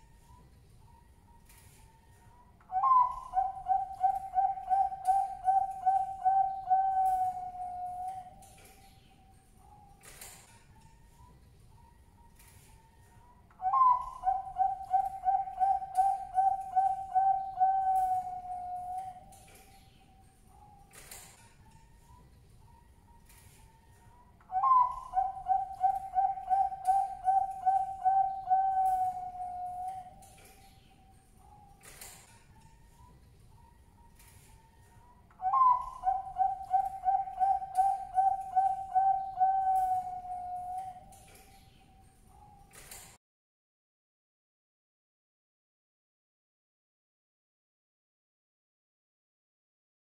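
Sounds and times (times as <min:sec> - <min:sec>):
dove cooing: 0:02.7 - 0:08.4, 0:13.6 - 0:19.4, 0:24.5 - 0:30.3, 0:35.4 - 0:41.2.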